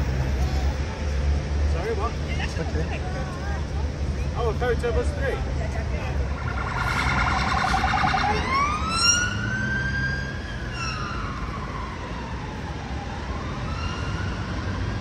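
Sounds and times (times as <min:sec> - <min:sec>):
low traffic rumble: 0:00.0 - 0:15.0
emergency vehicle siren wailing: 0:05.8 - 0:15.0.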